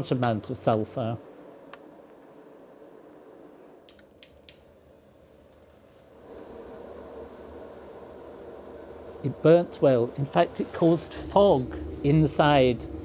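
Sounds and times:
gas torch flame hissing: 0:03.8 - 0:13.0.

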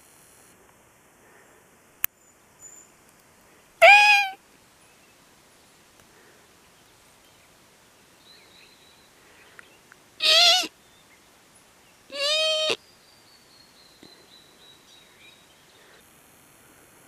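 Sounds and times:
deer high-pitched bleats: 0:03.8 - 0:04.4, 0:10.2 - 0:10.7, 0:12.1 - 0:12.8.

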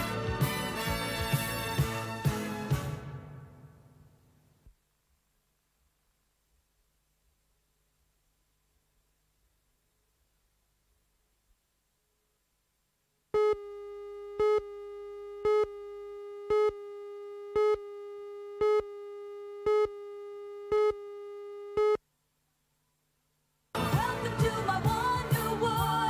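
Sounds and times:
music: 0:00.0 - 0:04.1, 0:23.8 - 0:26.0
electronic beep tone: 0:13.4 - 0:22.0.

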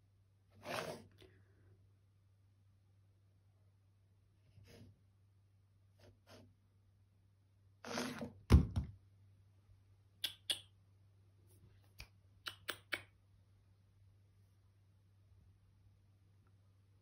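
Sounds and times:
remote scraping across wood: 0:00.6 - 0:01.2, 0:07.8 - 0:08.4.

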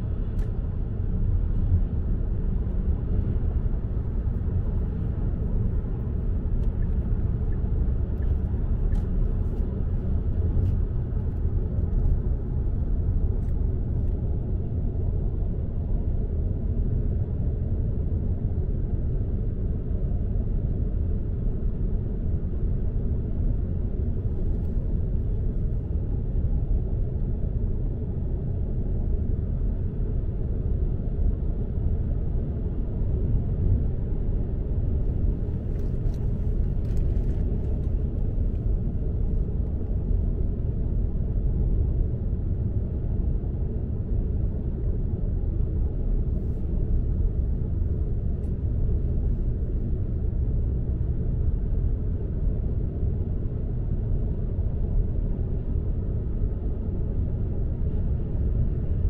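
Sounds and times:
car driving rumble: 0:35.0 - 0:42.1.

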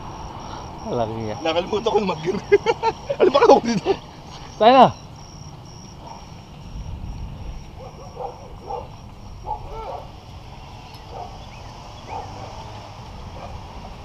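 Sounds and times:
bicycle tyres rolling on concrete: 0:00.0 - 0:14.0
wind rumble: 0:00.0 - 0:14.0
distant dog barking: 0:06.0 - 0:06.4, 0:07.4 - 0:10.2, 0:11.1 - 0:13.8.

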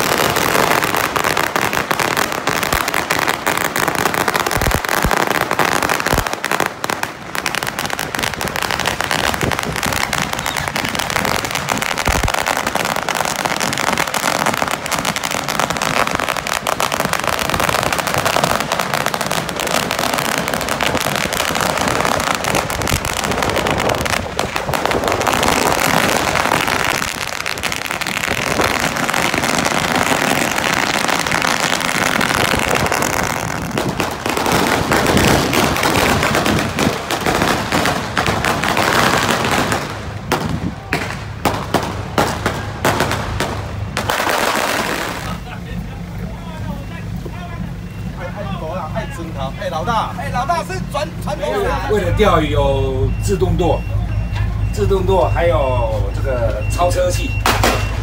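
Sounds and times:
firecrackers crackling: 0:00.0 - 0:58.0.

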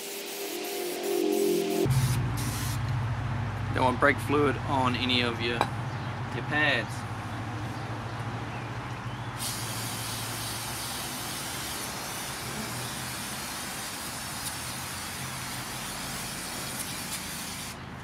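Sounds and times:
aerosol spray hissing: 0:00.0 - 0:02.8, 0:09.4 - 0:17.8.

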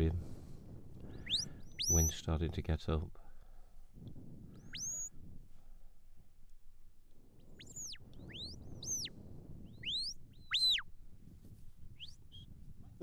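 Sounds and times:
low wind rumble: 0:00.0 - 0:13.0
shepherd's whistle notes: 0:01.2 - 0:02.2, 0:04.6 - 0:05.1, 0:07.6 - 0:09.1, 0:09.7 - 0:10.8.

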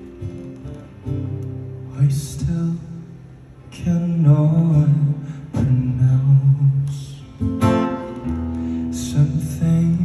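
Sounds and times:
acoustic guitar: 0:00.0 - 0:10.0
man singing: 0:01.9 - 0:07.6, 0:08.9 - 0:10.0.

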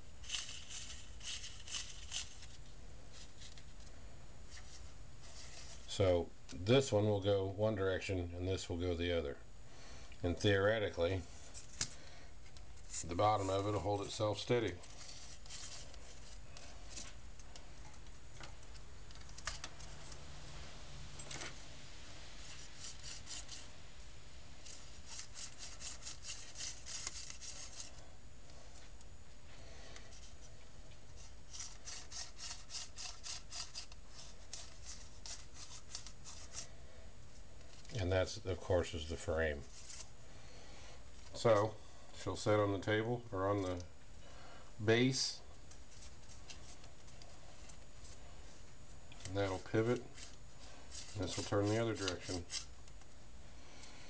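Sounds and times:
faint low hum: 0:00.0 - 0:54.0
rotor blades scraping and rustling: 0:00.2 - 0:03.7, 0:12.7 - 0:17.2, 0:39.0 - 0:40.2, 0:49.2 - 0:52.7
fingers rubbing model parts: 0:24.6 - 0:27.9, 0:31.5 - 0:36.7.

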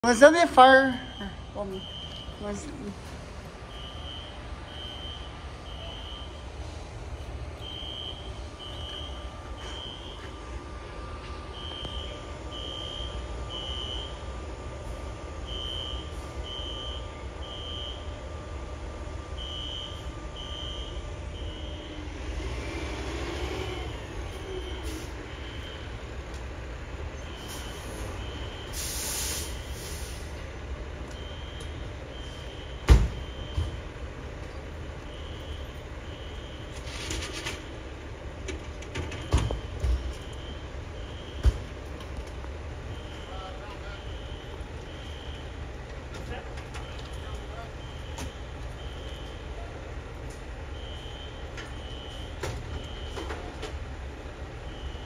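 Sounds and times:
distant fire alarm beeps: 0:00.0 - 0:26.2, 0:27.1 - 0:30.2, 0:31.0 - 0:38.0, 0:38.9 - 0:53.7, 0:54.3 - 0:55.0
traffic rumble: 0:00.0 - 0:55.0
brief hiss: 0:28.7 - 0:30.3.

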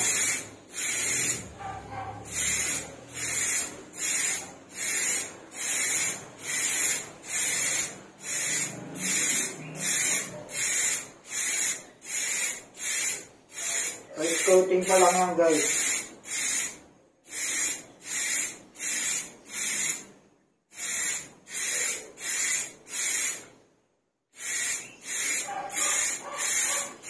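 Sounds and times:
spray paint can hissing: 0:00.0 - 0:20.1, 0:20.7 - 0:23.5, 0:24.4 - 0:27.0.

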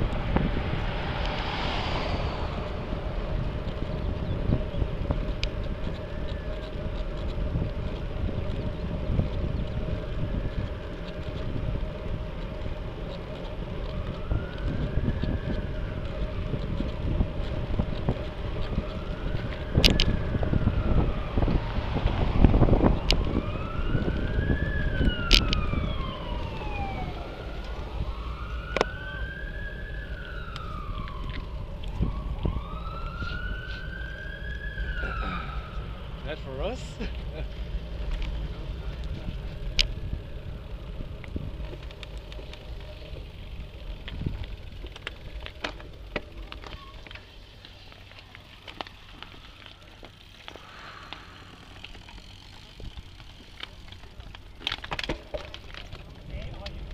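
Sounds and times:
wind noise on microphone: 0:00.0 - 0:36.1, 0:37.9 - 0:45.9
siren wailing: 0:13.6 - 0:36.7.

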